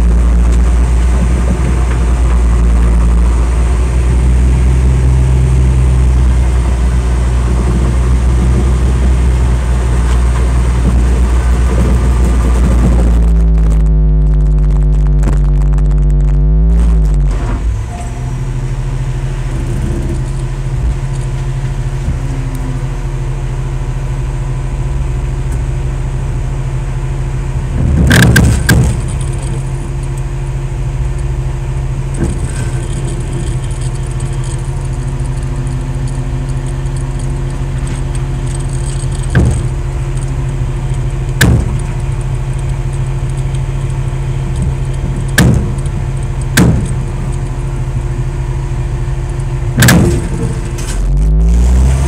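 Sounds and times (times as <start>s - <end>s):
heavy diesel engine drone: 0.0s - 52.0s
sharp clanks: 27.8s - 30.4s, 32.1s - 48.2s, 48.8s - 51.4s.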